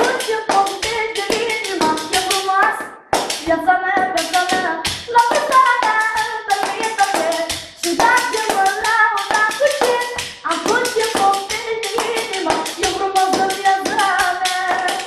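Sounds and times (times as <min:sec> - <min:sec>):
hand claps: 0:00.0 - 0:15.0.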